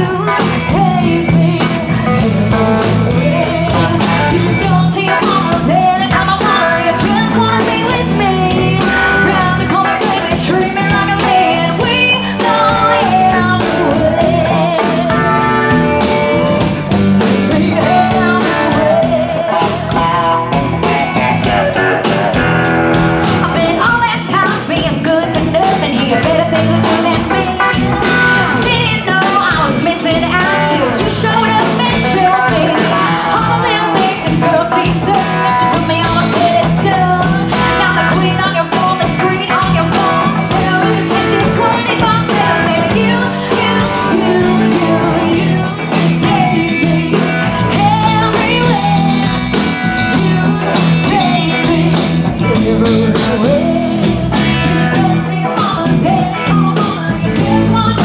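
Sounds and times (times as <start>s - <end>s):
woman singing: 0.0s - 22.4s, 23.3s - 58.0s
rock band playing: 0.0s - 58.0s.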